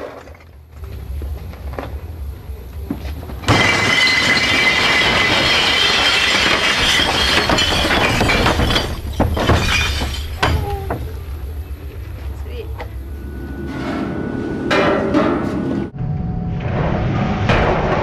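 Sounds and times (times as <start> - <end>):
glass bottles crashing and shattering: 3.4 - 11.0.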